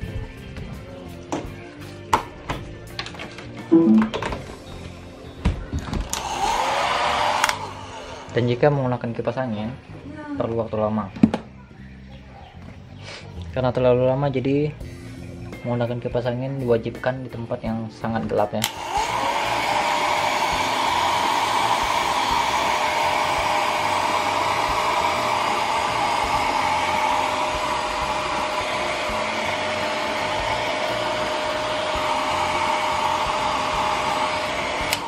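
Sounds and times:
hair dryer blowing: 0:06.0 - 0:08.6, 0:18.6 - 0:35.0.

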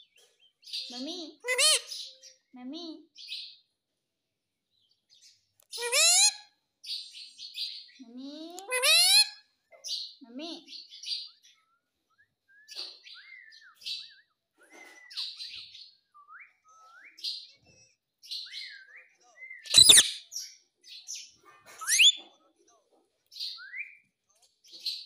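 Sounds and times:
parakeet chattering: 0:05.8 - 0:06.3, 0:19.7 - 0:20.2, 0:21.8 - 0:22.2
parakeet harsh screech: 0:19.7 - 0:20.2, 0:21.8 - 0:22.2
shrill rising whistle: 0:21.8 - 0:22.2.

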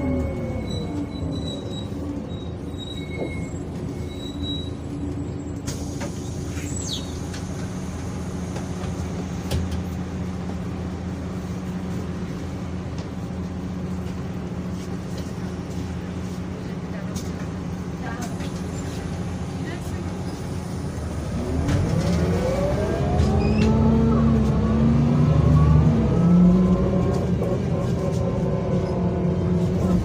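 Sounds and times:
bus diesel engine: 0:00.0 - 0:30.0
short high squeal: 0:00.2 - 0:05.0.

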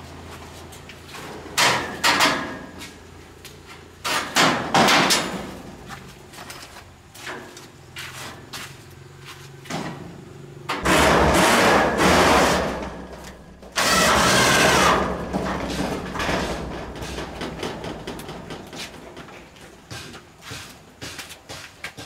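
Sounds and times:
motor-driven power tool running: 0:13.8 - 0:15.0.

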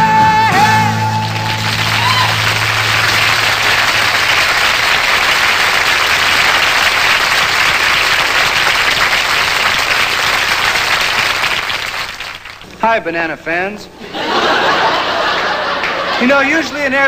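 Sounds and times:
audience applauding: 0:00.9 - 0:12.7, 0:14.3 - 0:16.4.

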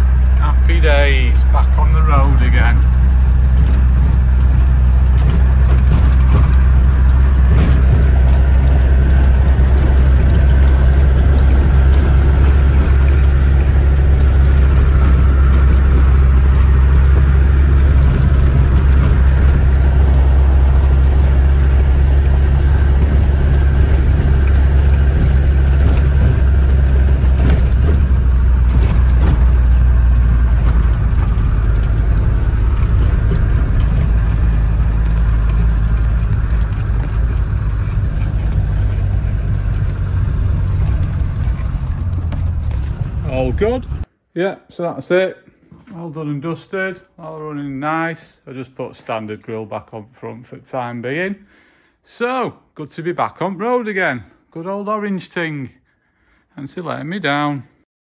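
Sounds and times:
diesel engine droning: 0:00.0 - 0:44.1.

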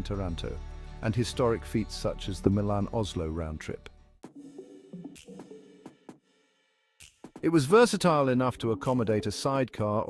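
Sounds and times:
quiet background music: 0:00.0 - 0:05.7
drum or cymbal hits: 0:07.0 - 0:07.8.

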